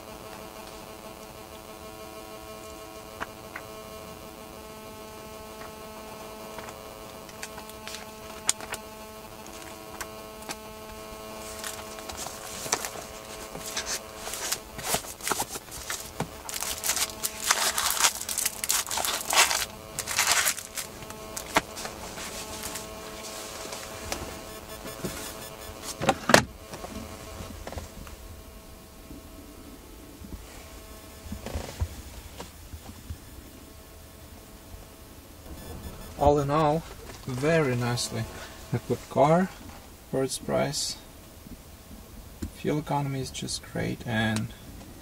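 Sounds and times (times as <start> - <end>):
faint hum: 0.0 - 45.0
rustling and clicking handling noises: 9.4 - 28.2.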